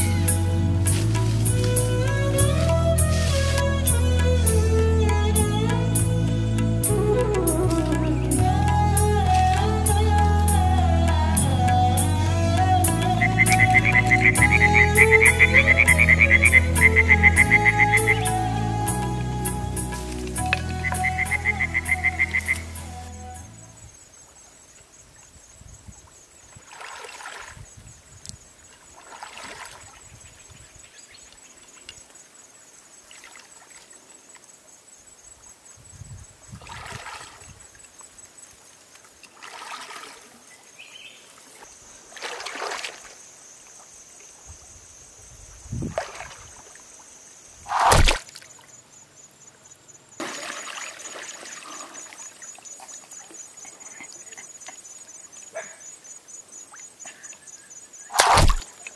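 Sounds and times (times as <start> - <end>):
water splashing: 0.0 - 6.2, 6.8 - 23.4, 26.5 - 27.8, 28.7 - 30.3, 36.6 - 38.1, 38.9 - 43.9, 45.8 - 48.8, 50.2 - 55.1, 58.1 - 58.9.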